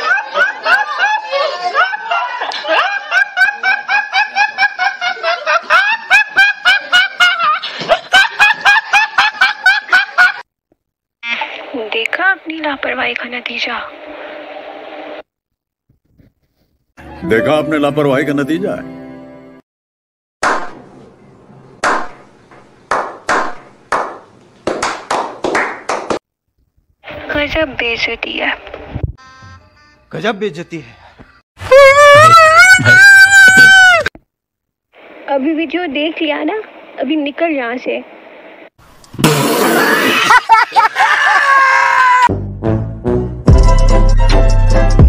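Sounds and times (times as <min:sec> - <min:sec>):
group slow-clapping: 0:22.9 - 0:26.2
man laughing uncontrollably: 0:31.7 - 0:34.0, 0:39.5 - 0:42.2.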